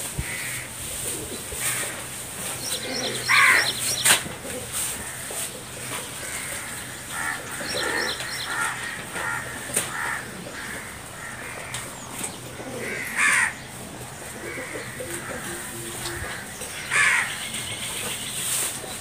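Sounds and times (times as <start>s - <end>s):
crows cawing: 0.2s - 0.7s, 1.6s - 2.0s, 2.8s - 3.8s, 5.0s - 5.4s, 6.1s - 13.7s, 14.4s - 17.8s.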